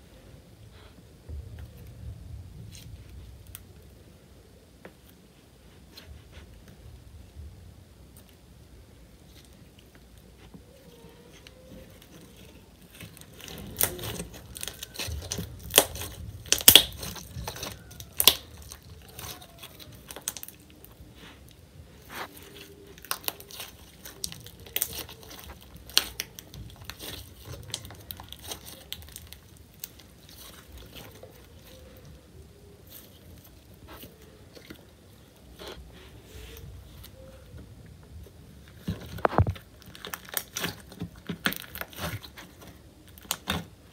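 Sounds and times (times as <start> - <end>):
slime squishing with pops: 9.2 - 35.9, 38.3 - 43.9.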